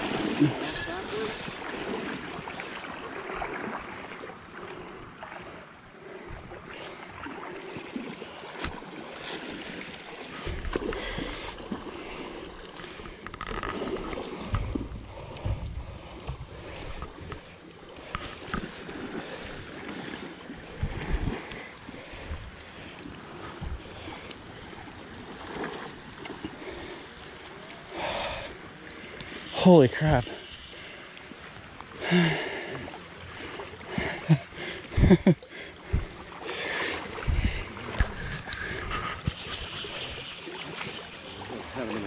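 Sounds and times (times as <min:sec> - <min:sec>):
sharp water splashes: 0:00.0 - 0:04.3
creek water running: 0:00.0 - 0:42.0
wind buffeting microphone: 0:20.6 - 0:21.5, 0:37.2 - 0:39.8.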